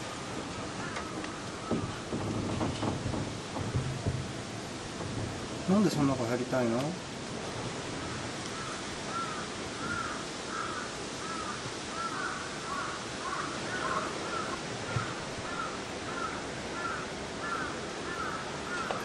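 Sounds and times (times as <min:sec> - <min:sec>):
bird calling: 0:07.9 - 0:19.0.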